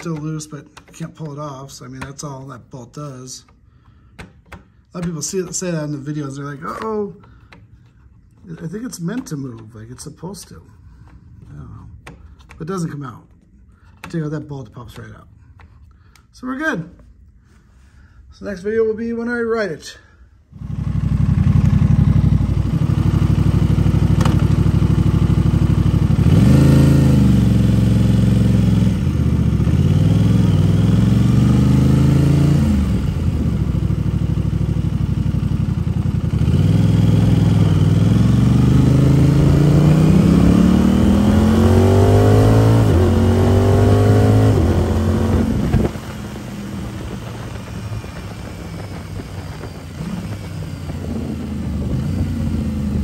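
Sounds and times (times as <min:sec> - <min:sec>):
motorcycle engine revving: 0:20.5 - 0:53.0.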